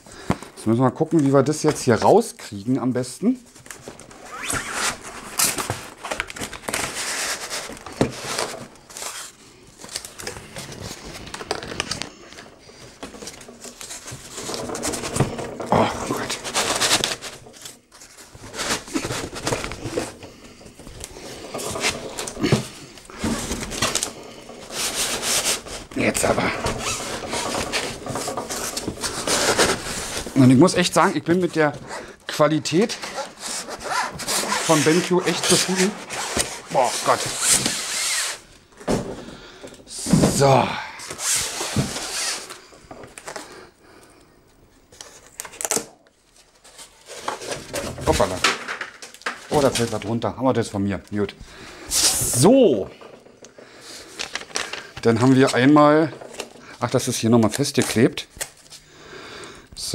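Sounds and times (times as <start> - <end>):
cardboard and foam rubbing: 3.3 - 11.3, 13.2 - 38.5, 41.1 - 42.6
box scraping rustle: 3.4 - 39.0, 39.9 - 43.5, 46.3 - 48.5, 51.7 - 58.0
tape tearing off box: 4.0 - 10.3, 33.0 - 38.5, 41.1 - 42.6.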